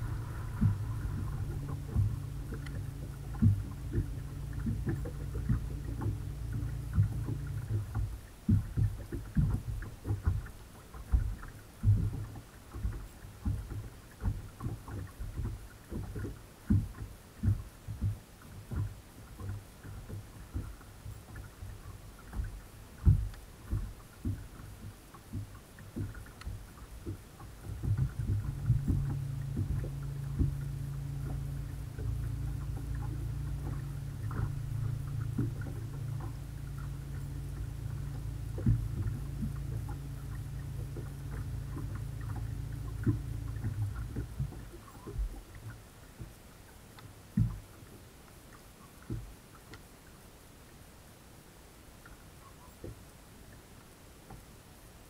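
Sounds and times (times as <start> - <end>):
electric trolling motor humming: 0.0 - 9.7, 26.8 - 45.8
waves slapping boat hull: 0.0 - 55.0.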